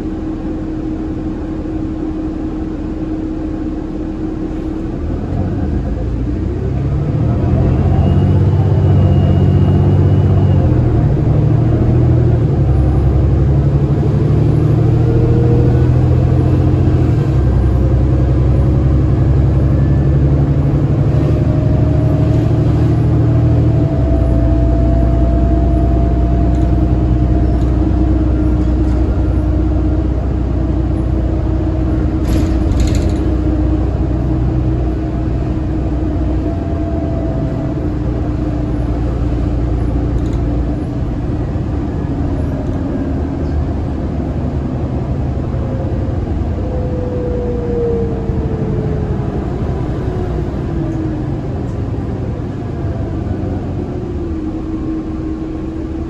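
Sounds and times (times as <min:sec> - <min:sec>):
bus diesel engine running: 0:00.0 - 0:56.0
short rattle: 0:32.2 - 0:33.5.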